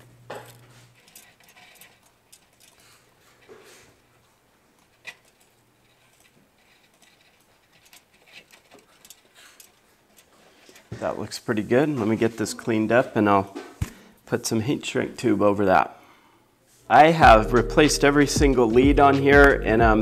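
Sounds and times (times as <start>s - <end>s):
wire and foil rustling: 0.0s - 13.8s.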